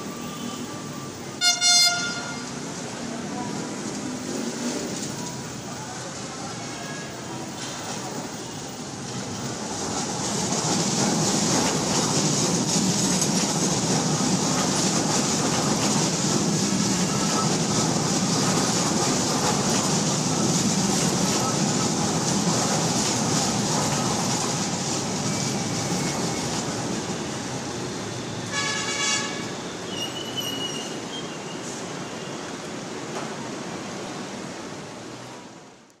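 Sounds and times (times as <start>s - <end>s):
train wheels on rail: 0.0s - 35.9s.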